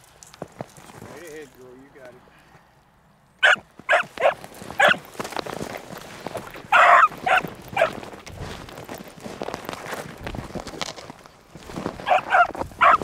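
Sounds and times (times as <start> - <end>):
dog baying: 3.4 - 5.0, 6.7 - 8.0, 12.0 - 13.0.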